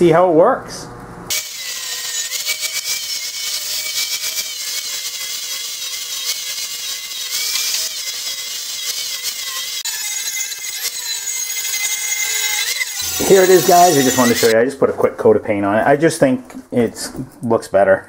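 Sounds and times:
angle grinder on steel: 0:01.3 - 0:14.5.

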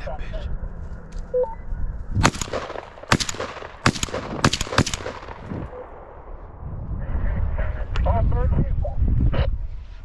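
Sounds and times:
gunshots with echo: 0:02.2 - 0:06.1.

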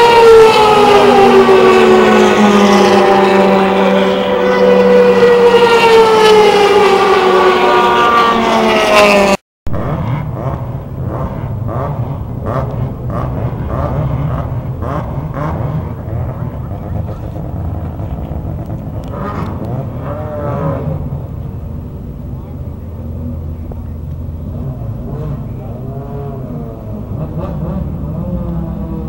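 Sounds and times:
race car passing at speed: 0:00.0 - 0:21.4, 0:24.3 - 0:29.0
race car engines idling: 0:09.9 - 0:29.0.

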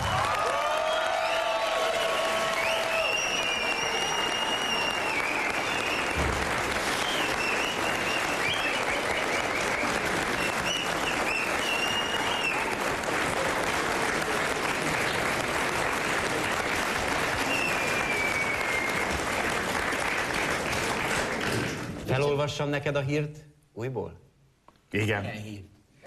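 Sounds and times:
studio audience applauding: 0:00.0 - 0:22.2.

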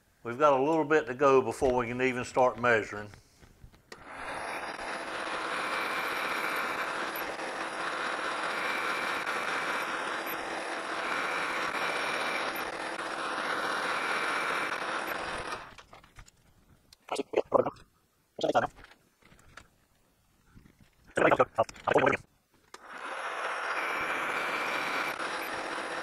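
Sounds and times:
lathe machine hum: 0:04.1 - 0:15.6.

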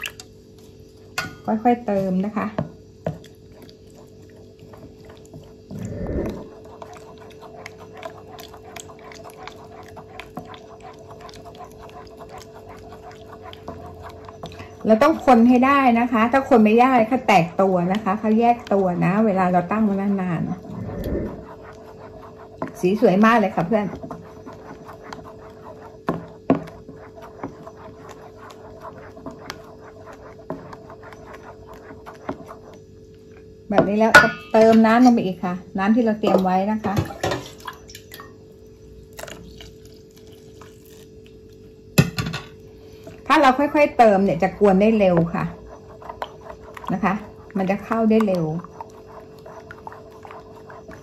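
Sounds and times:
faint hum: 0:00.0 - 0:51.0
liquid sloshing in a bowl: 0:01.9 - 0:35.1, 0:36.2 - 0:38.4, 0:39.0 - 0:51.0
spatula scraping metal bowl: 0:03.9 - 0:32.8, 0:43.3 - 0:51.0.

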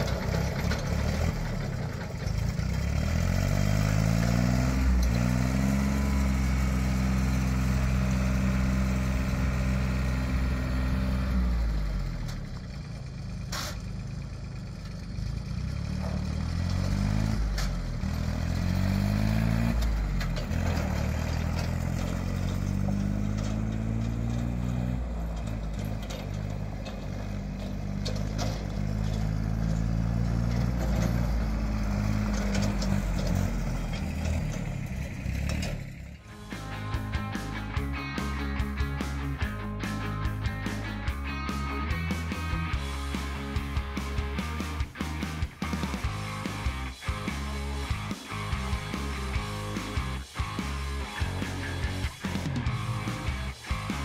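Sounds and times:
tractor diesel engine revving: 0:00.0 - 0:54.0.

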